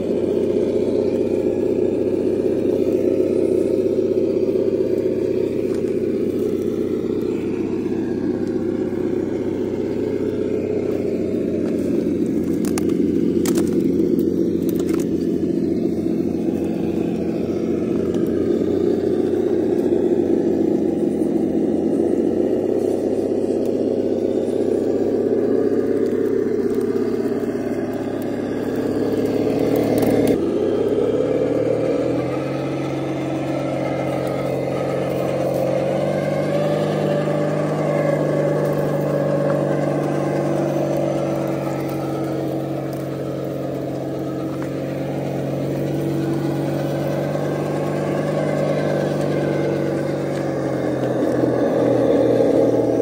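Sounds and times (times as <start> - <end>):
simulated engine rumble: 0.0 - 53.0
tyres clicking on rock: 10.8 - 15.7.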